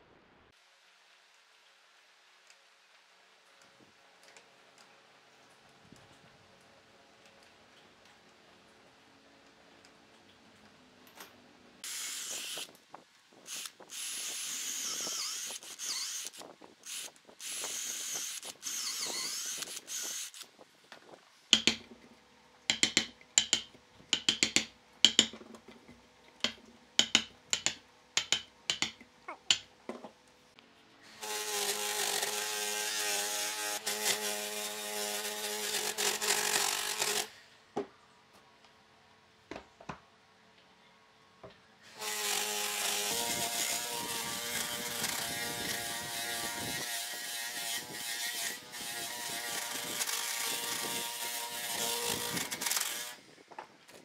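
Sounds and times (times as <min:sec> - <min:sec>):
power tool motor running: 0:13.5 - 0:20.4
mallet striking chisel: 0:21.6 - 0:21.9, 0:22.7 - 0:25.5, 0:26.4 - 0:29.7
scraping on wood: 0:22.7 - 0:29.6.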